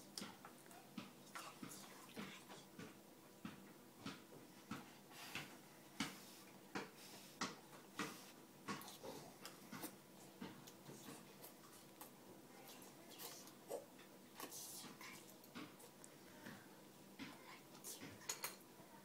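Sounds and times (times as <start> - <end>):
child eating noodles: 8.0 - 16.5.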